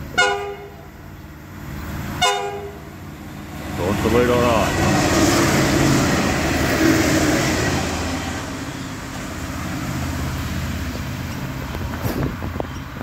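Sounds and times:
diesel railcar engine: 0:00.0 - 0:13.0
train wheels rushing over track: 0:02.9 - 0:13.0.

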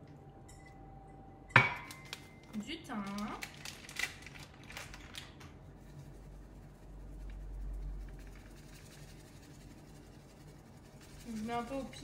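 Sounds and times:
plastic bag crinkling: 0:01.9 - 0:05.5
faint rustles of dried herbs: 0:02.7 - 0:12.0.

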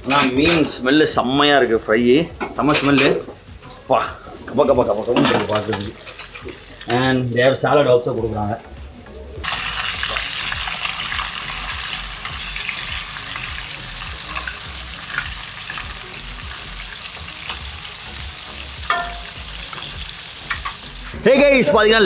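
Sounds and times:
fish sizzling in hot oil: 0:02.7 - 0:07.2, 0:09.4 - 0:21.2.

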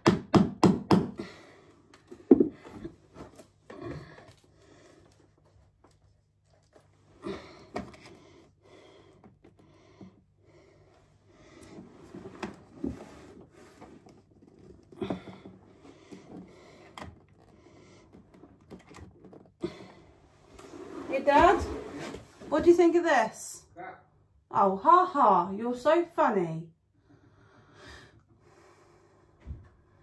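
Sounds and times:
picture frames knocking and scraping: 0:20.6 - 0:22.9.

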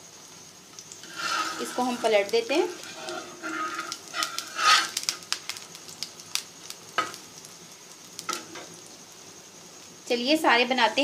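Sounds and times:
pancake sizzling on a griddle: 0:00.0 - 0:11.0
spatula scraping a griddle: 0:01.0 - 0:05.7.

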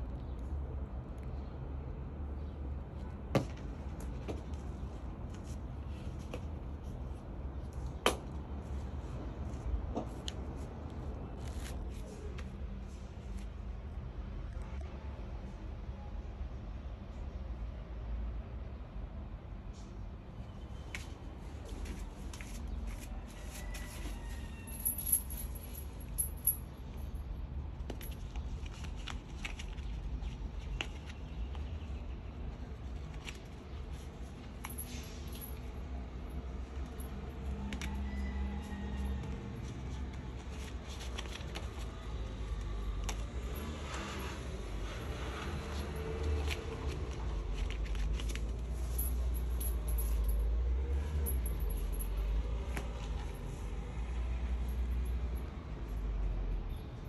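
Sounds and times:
high jingling: 0:48.8 - 0:52.3.

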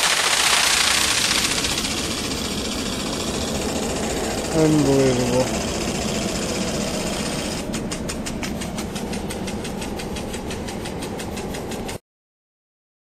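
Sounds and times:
sprinkler water hitting tent fabric: 0:00.0 - 0:03.7.

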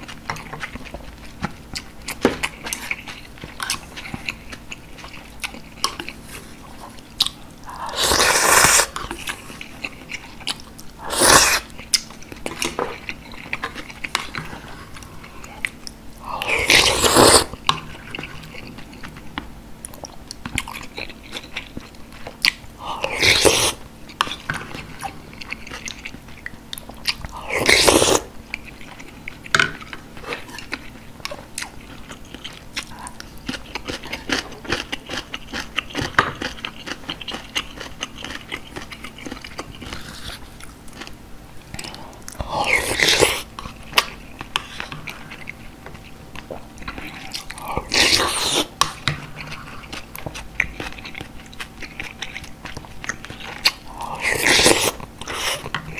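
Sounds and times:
wet chewing: 0:00.0 - 0:55.9
loud slurps of broth: 0:07.9 - 0:09.0, 0:11.1 - 0:11.7, 0:16.6 - 0:17.5, 0:27.5 - 0:28.3.

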